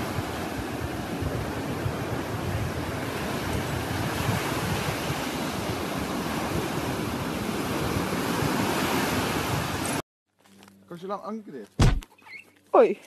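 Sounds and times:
surf washing on beach: 0.0s - 10.0s
wind buffeting microphone: 0.0s - 10.0s.

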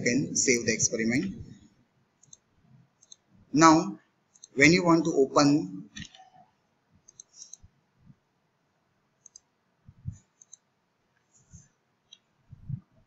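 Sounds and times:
computer mouse clicks: 2.2s - 3.3s, 4.3s - 4.6s, 7.0s - 7.7s, 9.2s - 11.3s, 12.0s - 12.3s.

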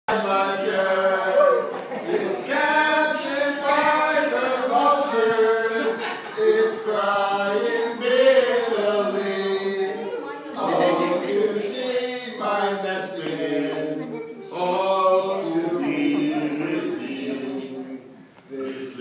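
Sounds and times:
men singing unaccompanied: 0.1s - 19.0s.

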